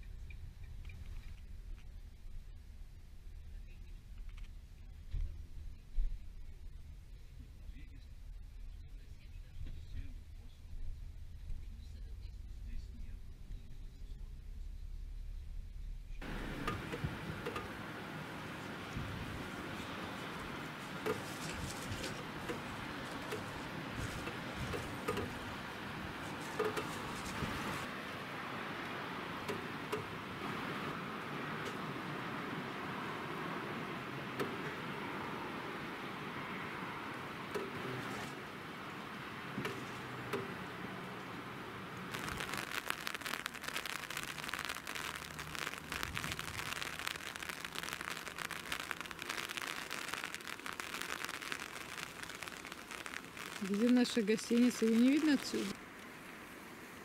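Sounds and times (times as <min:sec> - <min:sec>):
raindrops ticking: 0:16.2 - 0:35.3, 0:41.9 - 0:56.1
steady rain falling: 0:16.2 - 0:57.0.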